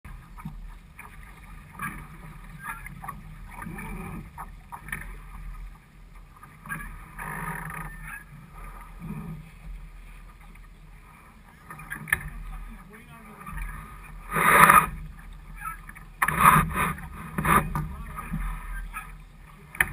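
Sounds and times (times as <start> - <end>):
water splashing against hull: 0.1 - 19.9
wind rumbling on microphone: 0.1 - 19.9
boat rigging knocks: 15.9 - 18.4.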